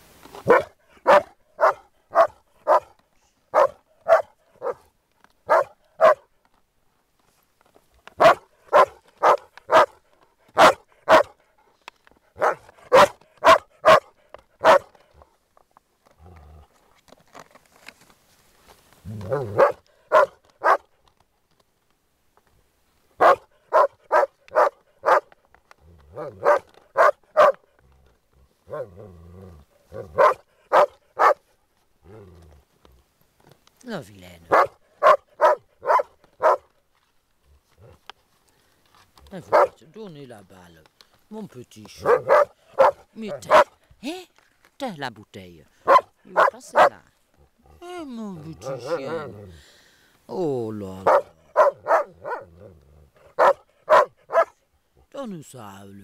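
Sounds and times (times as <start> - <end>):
dog barking: 0.4 - 2.9, 3.5 - 6.3, 8.2 - 10.0, 10.6 - 11.4, 12.4 - 14.9, 19.2 - 20.9, 23.2 - 25.3, 26.1 - 27.6, 28.7 - 29.0, 29.9 - 31.4, 34.5 - 36.7, 39.5 - 39.8, 42.0 - 43.7, 45.8 - 47.0, 51.0 - 52.6, 53.3 - 54.6
low rough dog sounds: 19.0 - 20.8, 23.2 - 33.1, 37.4 - 38.1, 45.8 - 49.6, 51.0 - 55.2.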